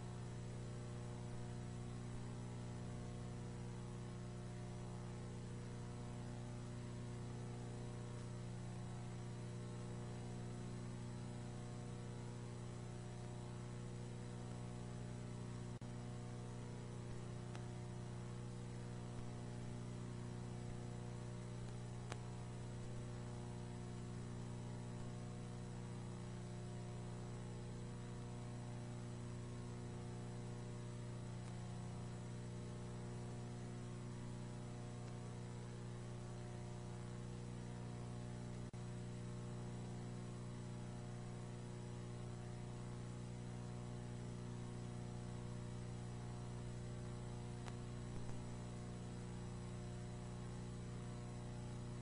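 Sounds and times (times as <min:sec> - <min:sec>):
electrical hum: 0:00.0 - 0:52.0
faint click: 0:17.1 - 0:17.8, 0:21.6 - 0:22.3, 0:31.4 - 0:31.7, 0:35.0 - 0:35.3, 0:47.6 - 0:48.5.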